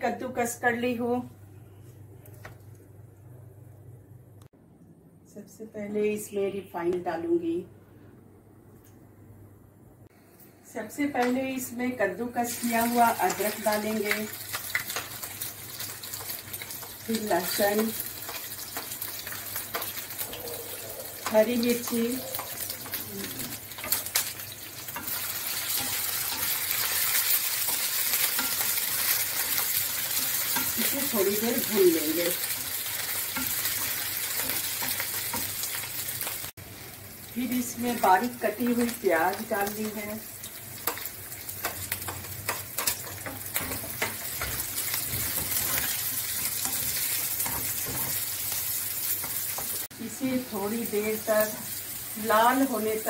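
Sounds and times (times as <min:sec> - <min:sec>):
food sizzling in oil: 0:11.6 - 0:53.0
spatula clicking against a pan: 0:40.8 - 0:44.6.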